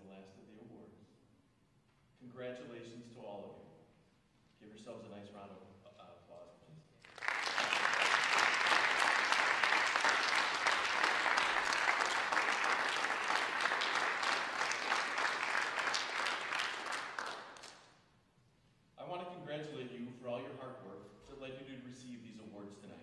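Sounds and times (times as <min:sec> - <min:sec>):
audience applauding: 0:07.0 - 0:17.9.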